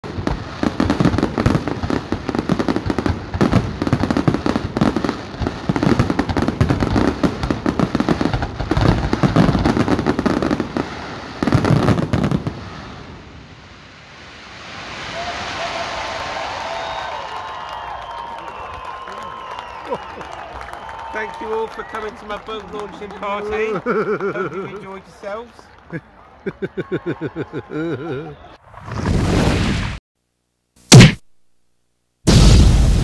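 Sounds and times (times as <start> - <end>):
fireworks bangs and crackles: 0.0 - 19.5, 32.3 - 33.0
crowd clapping and cheering: 15.2 - 28.6.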